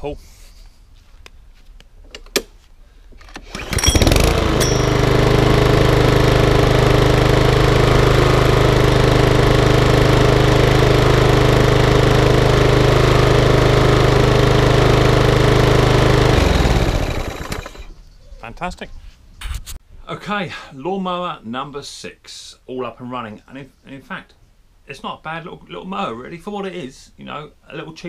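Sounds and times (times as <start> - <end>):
lawnmower engine running: 3.4 - 18.0.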